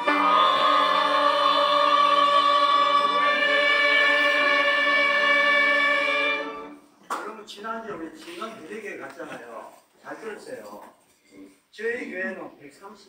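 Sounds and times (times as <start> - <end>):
choir singing a hymn: 0.0 - 6.9.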